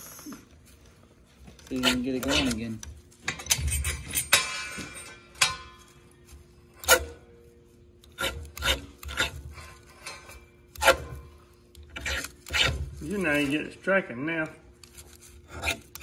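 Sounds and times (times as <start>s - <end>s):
ferro rod scraped with striker: 8.0s - 9.4s, 11.9s - 13.2s.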